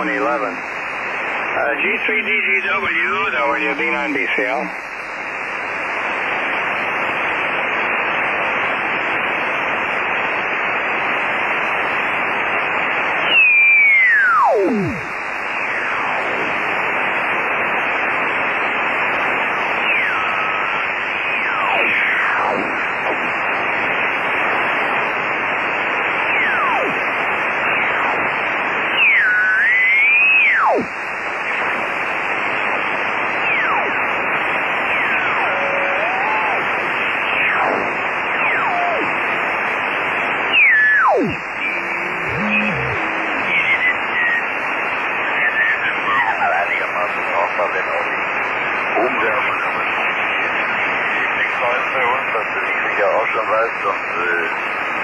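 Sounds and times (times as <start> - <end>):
shortwave radio hiss: 0.0 - 55.0
radio whistles sliding down: 12.7 - 16.5, 18.4 - 46.4.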